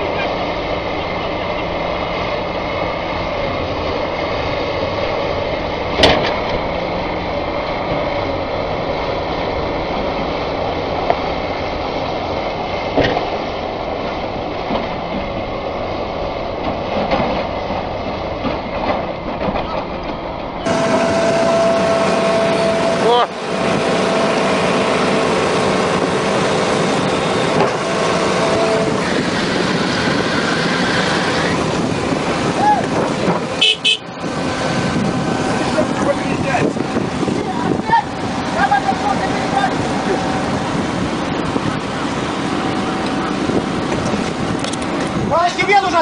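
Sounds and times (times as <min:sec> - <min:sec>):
excavator diesel engines running: 0:00.0 - 0:46.0
steady tone: 0:20.6 - 0:32.6.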